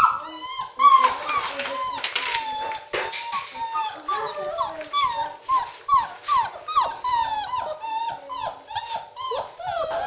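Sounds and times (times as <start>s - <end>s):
puppies whining and squealing: 0.0s - 10.0s.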